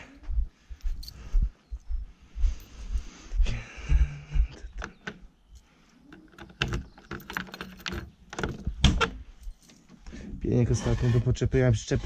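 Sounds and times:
key rattling in door lock: 0:04.8 - 0:09.7.

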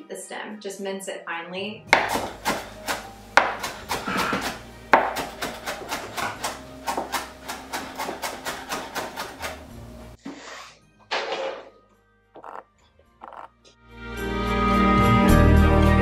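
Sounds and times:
knife chopping on cutting board: 0:01.9 - 0:09.5.

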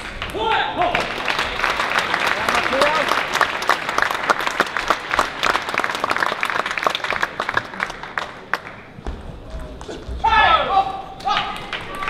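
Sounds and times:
spectators applauding: 0:00.0 - 0:09.0.

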